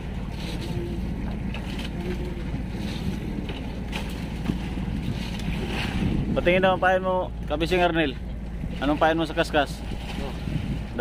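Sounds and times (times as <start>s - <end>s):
wind on microphone: 0.0s - 7.5s, 9.8s - 11.0s
boat engine running: 0.0s - 11.0s.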